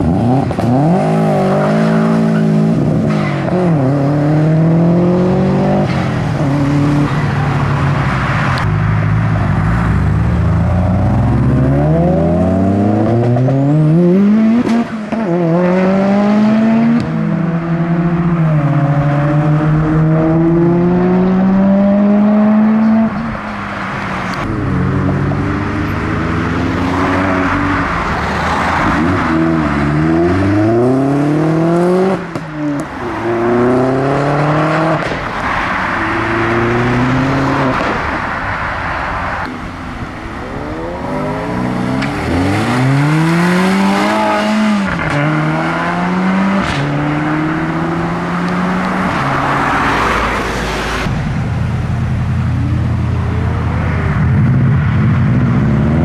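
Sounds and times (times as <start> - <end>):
engine revving: 0.0 - 7.2, 9.8 - 23.4, 24.3 - 35.2, 35.9 - 38.1, 40.4 - 51.2
cars accelerating through gears: 0.0 - 8.7, 9.9 - 38.4, 40.2 - 51.2.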